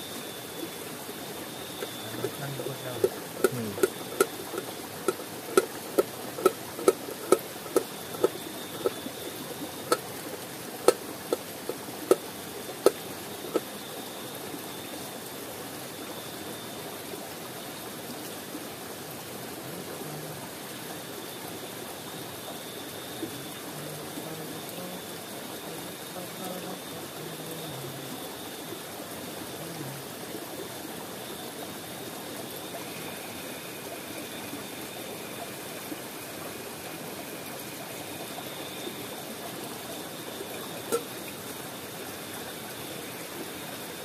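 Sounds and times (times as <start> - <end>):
river flowing: 0.0 - 44.0.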